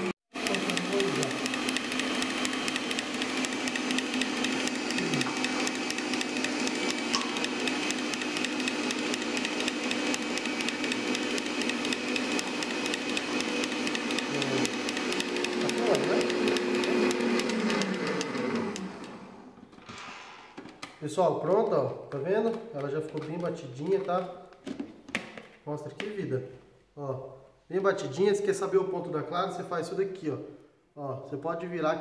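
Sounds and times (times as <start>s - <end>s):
stand mixer whisking: 0.0s - 19.4s.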